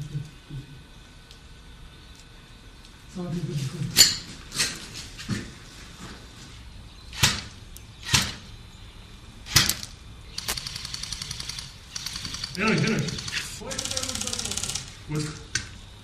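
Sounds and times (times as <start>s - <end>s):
airsoft gun shots: 7.1s - 8.5s, 9.5s - 14.9s
full-auto gunfire rattle: 9.5s - 15.0s.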